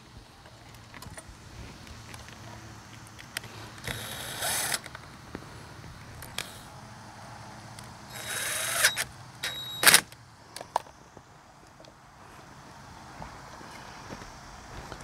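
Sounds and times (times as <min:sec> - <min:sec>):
cordless drill whirring: 0:03.8 - 0:04.9, 0:06.2 - 0:06.7, 0:08.1 - 0:10.0.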